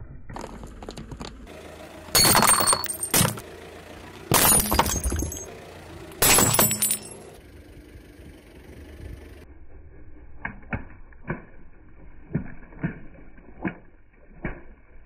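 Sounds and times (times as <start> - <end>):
ceramic crunching under tyre: 2.2 - 3.4, 4.3 - 5.5, 6.2 - 7.2.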